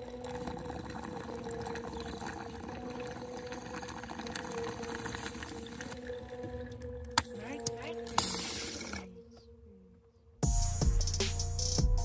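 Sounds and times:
bubbling water with crackling ticks: 0.0s - 7.1s.

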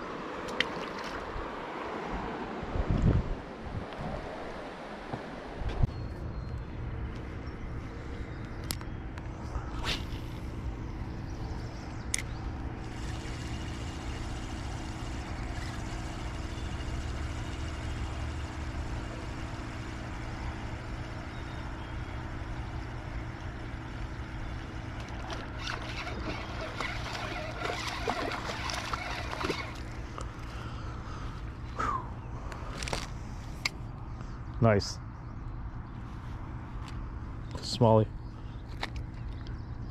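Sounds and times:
low engine hum: 0.0s - 39.9s
water splashes: 0.4s - 1.6s, 25.1s - 30.0s.

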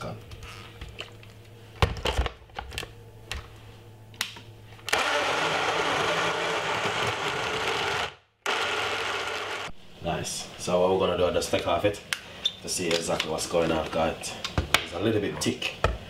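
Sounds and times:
blender motor running: 4.9s - 9.8s.

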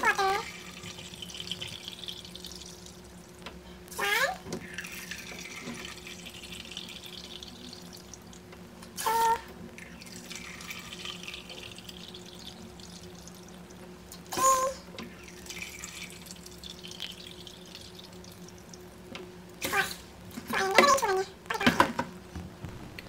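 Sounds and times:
water trickling into a cup: 0.0s - 3.4s, 4.6s - 19.0s.

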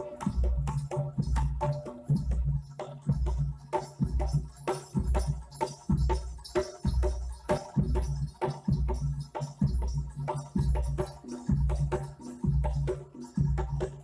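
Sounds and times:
drum and metal percussion strokes: 0.0s - 14.0s.

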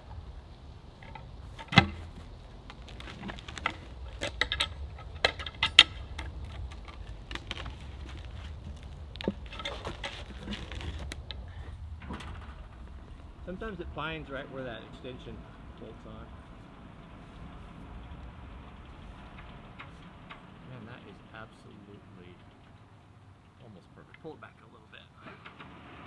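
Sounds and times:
low steady rumble: 0.0s - 26.0s
log knocking on sawmill bed: 1.0s - 13.0s.

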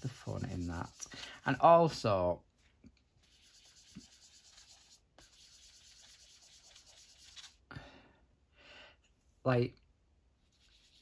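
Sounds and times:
sponge rubbing on paper: 0.0s - 1.7s, 3.2s - 7.6s, 10.4s - 11.0s.

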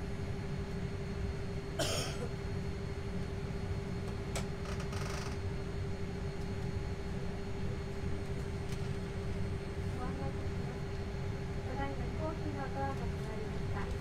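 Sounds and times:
air conditioning hum: 0.0s - 14.0s
person clearing throat: 1.8s - 2.3s.

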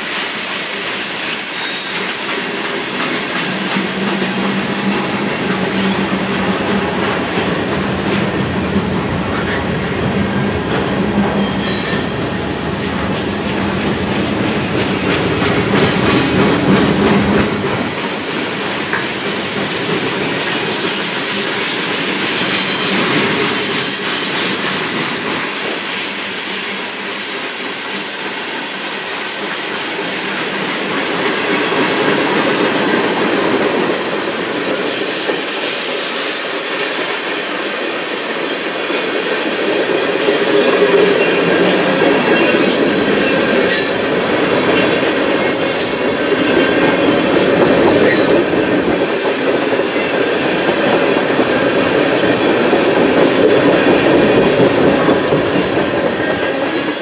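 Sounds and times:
train wheels clattering over rail joints: 0.0s - 57.0s
high wheel squeal: 1.5s - 2.2s.

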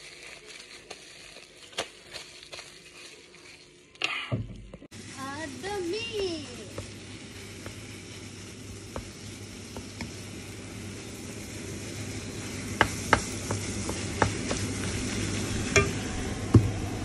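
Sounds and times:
meat sizzling in a wok: 4.9s - 17.0s.

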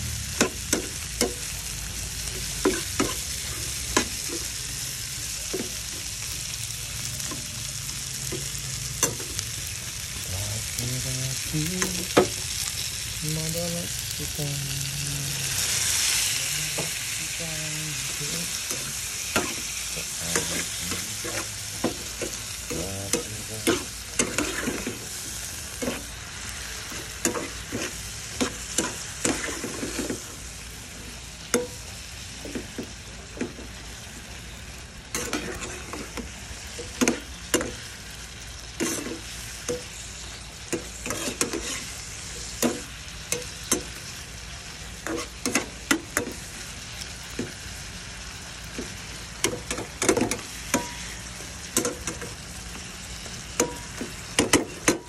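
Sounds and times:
shrimp sizzling in hot oil: 0.0s - 55.0s
metal utensils scraping a pan: 18.5s - 26.2s, 26.8s - 30.3s, 35.1s - 37.8s, 38.7s - 40.0s, 40.6s - 44.0s, 45.0s - 46.4s.

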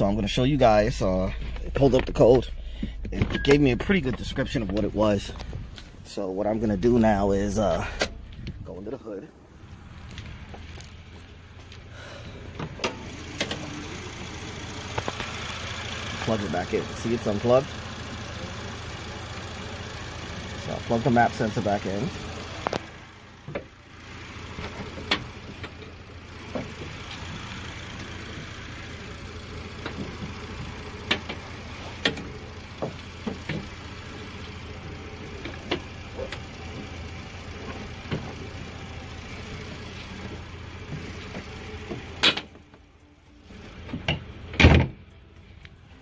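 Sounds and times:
car engine idling: 0.0s - 46.0s
car hood shutting thump: 44.5s - 45.0s.

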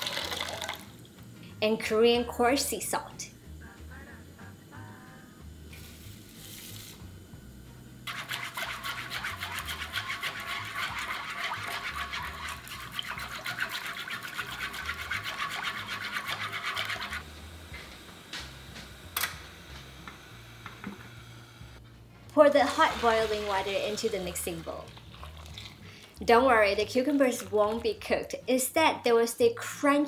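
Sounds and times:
wooden spatula scraping salt in pan: 8.1s - 17.2s.

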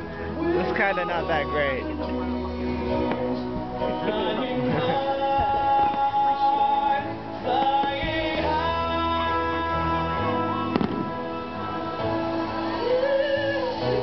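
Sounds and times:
music with sustained notes: 0.0s - 14.0s
firework bang: 10.7s - 11.3s.

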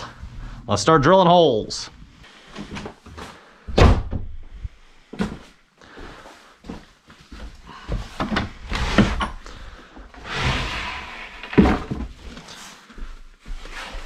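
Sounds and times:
footsteps: 5.1s - 8.4s, 11.9s - 14.0s.

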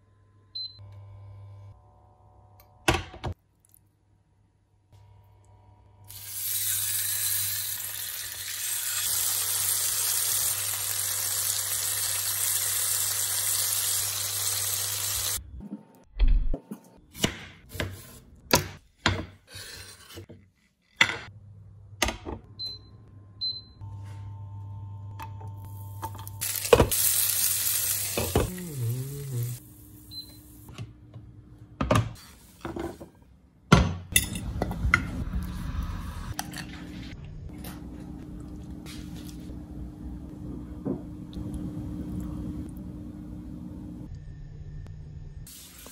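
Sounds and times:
fish sizzling in hot oil: 6.1s - 15.4s, 26.4s - 28.2s.

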